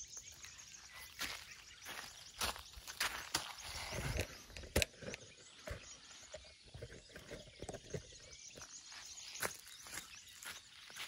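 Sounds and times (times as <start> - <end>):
faint outdoor ambience: 0.0 - 11.0
footsteps on sand: 0.2 - 4.4, 8.6 - 11.0.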